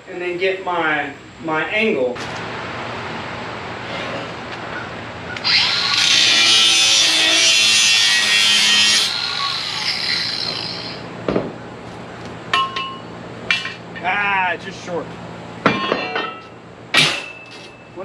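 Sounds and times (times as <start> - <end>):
angle grinder cutting steel: 5.4 - 11.0.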